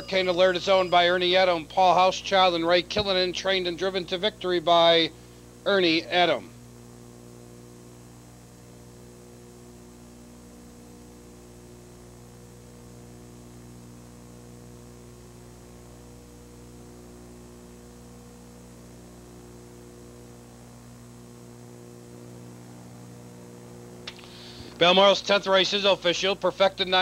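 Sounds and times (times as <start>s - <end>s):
low electrical hum: 0.0s - 27.0s
faint hiss: 17.3s - 27.0s.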